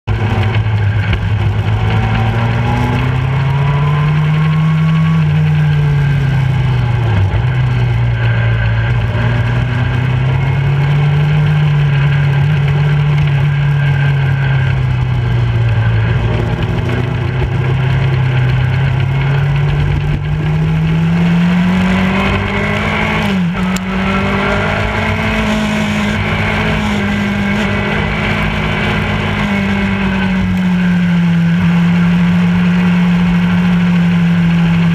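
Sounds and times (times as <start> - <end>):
motorcycle engine revving: 0.0 - 34.9.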